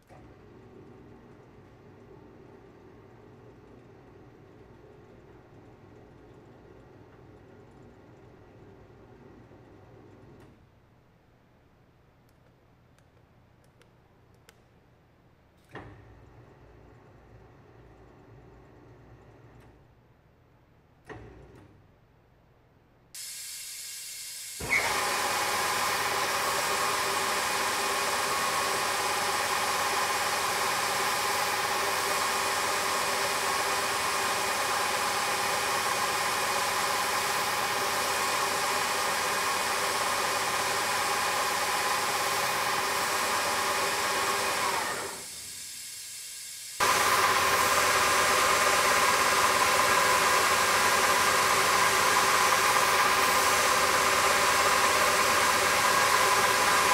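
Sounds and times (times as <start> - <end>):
belt sander running: 24.6 - 56.9.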